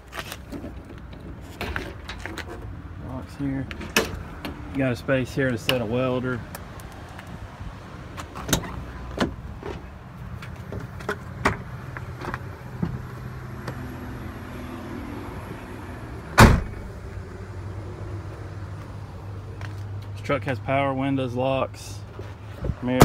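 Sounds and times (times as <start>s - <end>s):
loud thump: 16.4s - 16.9s
truck door clicks and knocks: 16.4s - 16.9s.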